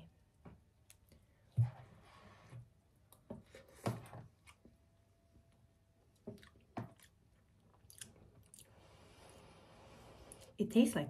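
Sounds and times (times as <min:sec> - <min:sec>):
spoon and chewing sounds: 0:06.1 - 0:09.0.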